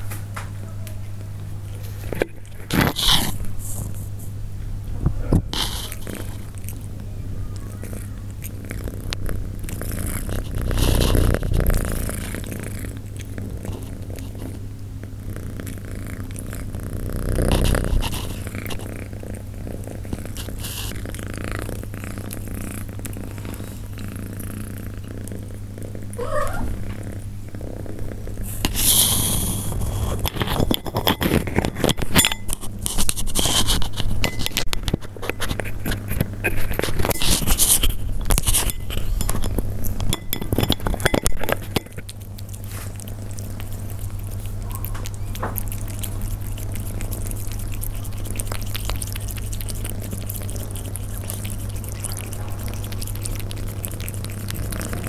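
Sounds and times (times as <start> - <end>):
cats chewing and crunching: 0.0 - 55.0.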